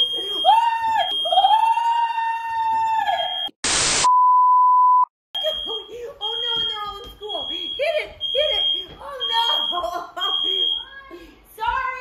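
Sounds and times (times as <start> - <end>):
woman shrieking: 0.2 - 3.3
tv static burst: 3.6 - 4.2
smoke alarm high tone: 4.1 - 10.9.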